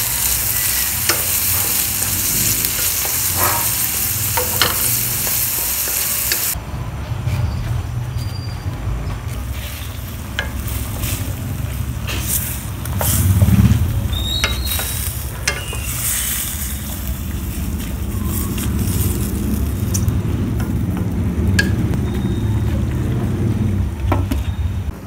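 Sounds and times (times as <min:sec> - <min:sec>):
squid sizzling in a wok: 0:00.0 - 0:06.6, 0:09.4 - 0:20.9
spatula scraping against pan: 0:00.2 - 0:06.6
steady low rumble: 0:16.8 - 0:24.1.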